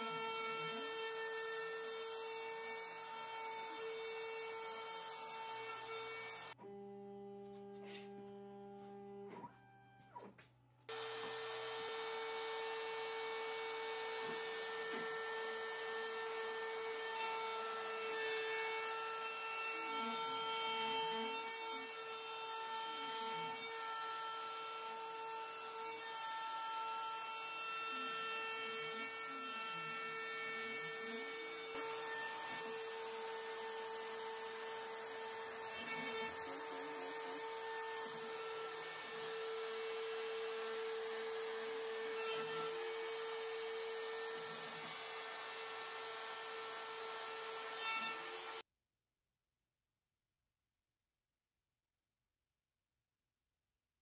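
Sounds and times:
router spindle high whine: 0:10.9 - 0:48.6.

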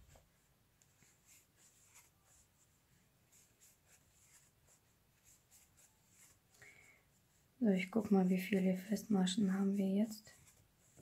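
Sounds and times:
crochet hook scratching yarn: 0:00.8 - 0:06.5, 0:09.4 - 0:11.0.

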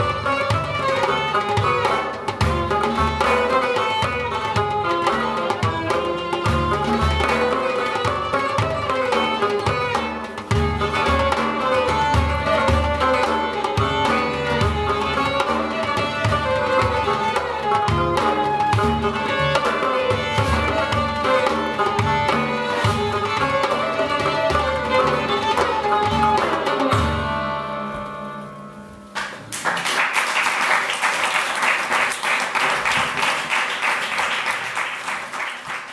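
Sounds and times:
ensemble of strings and drums: 0:00.0 - 0:29.6
audience applauding: 0:29.2 - 0:35.9.

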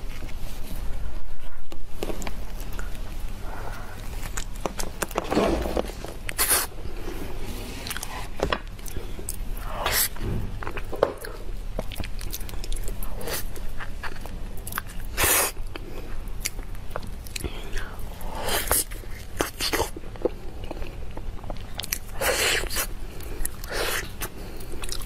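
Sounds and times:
wet sticky chewing: 0:02.0 - 0:05.2, 0:08.8 - 0:25.0.

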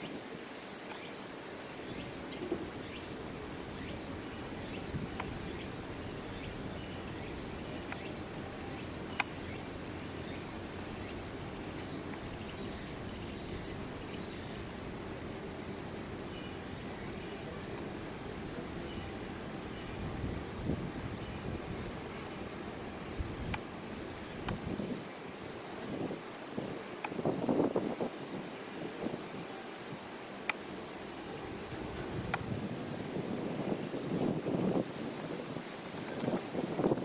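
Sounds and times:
insects chirping: 0:00.0 - 0:37.0
faint clicks: 0:04.7 - 0:05.7, 0:07.2 - 0:14.9, 0:23.2 - 0:24.8, 0:30.4 - 0:30.7, 0:31.9 - 0:32.5.

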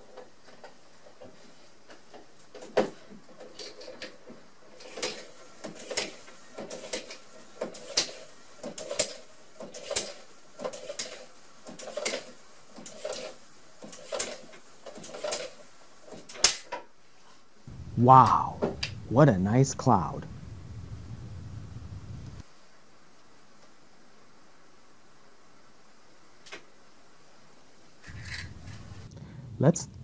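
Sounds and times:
hand air pump strokes: 0:04.8 - 0:16.3.

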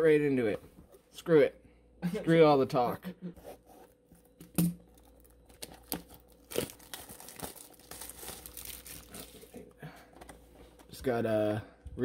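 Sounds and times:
plastic wrap crinkling and tearing: 0:04.8 - 0:09.7.

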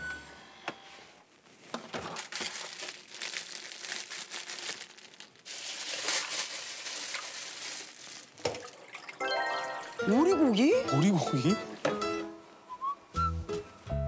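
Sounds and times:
plastic packaging crinkling: 0:01.5 - 0:09.0.

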